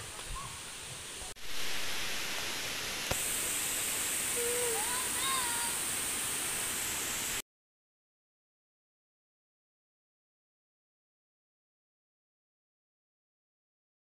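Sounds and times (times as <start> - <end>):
falling water rushing: 0.0 - 7.4
high steady hiss: 0.0 - 7.4.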